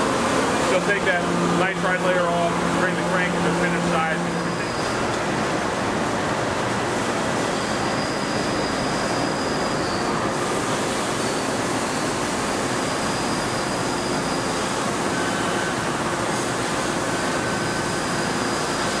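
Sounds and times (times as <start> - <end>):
polishing machine rushing noise: 0.0 - 19.0
faint high whine: 7.0 - 16.3.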